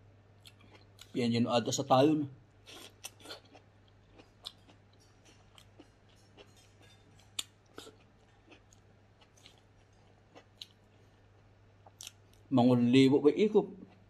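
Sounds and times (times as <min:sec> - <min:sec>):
person chewing food: 0:00.3 - 0:01.2, 0:02.5 - 0:12.5, 0:13.8 - 0:14.0.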